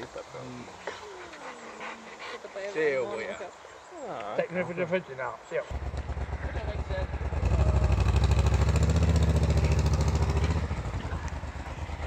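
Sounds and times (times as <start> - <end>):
motorcycle engine pulsing: 5.7 - 12.0.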